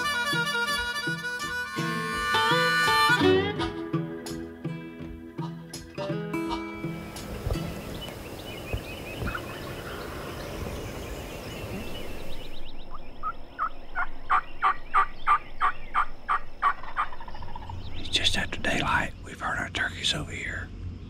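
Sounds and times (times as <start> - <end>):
wild turkey calling: 0.0 - 20.2.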